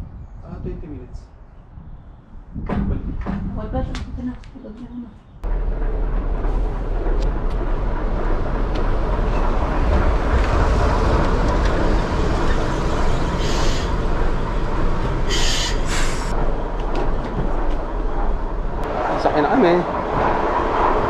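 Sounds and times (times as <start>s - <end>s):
railcar rumbling: 1.4s - 21.0s
short hisses: 15.3s - 16.3s.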